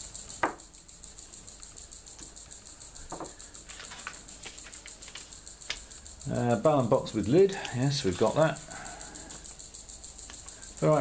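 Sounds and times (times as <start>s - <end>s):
rapid high-pitched ticking: 0.0s - 11.0s
soft knocks on table: 3.1s - 3.3s
plastic bag crinkling: 3.6s - 5.8s.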